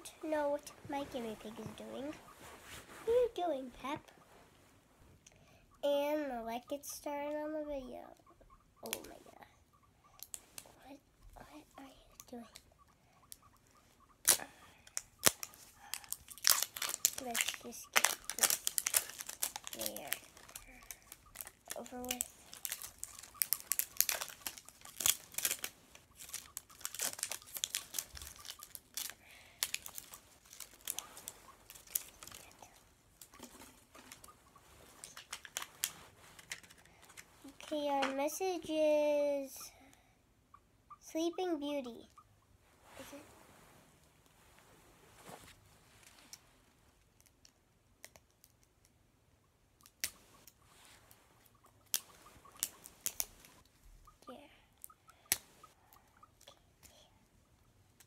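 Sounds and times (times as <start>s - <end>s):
plastic wrapping crinkling and ripping: 14.3s - 37.0s
paper card rustling: 15.2s - 38.1s.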